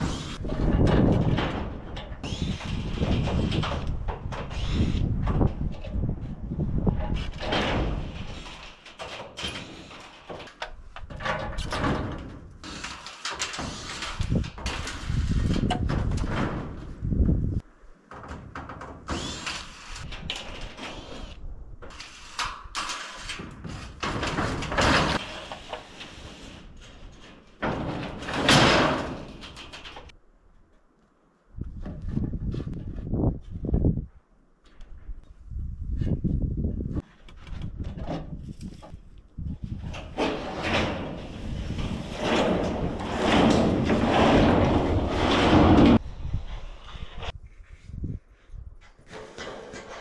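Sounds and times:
sheet metal scraping and clattering: 0:00.0 - 0:16.9, 0:21.9 - 0:30.1, 0:39.7 - 0:46.0.

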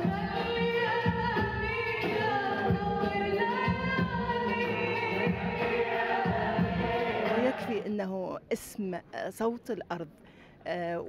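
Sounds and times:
woman singing: 0:00.0 - 0:08.4
choir singing: 0:04.7 - 0:07.8.

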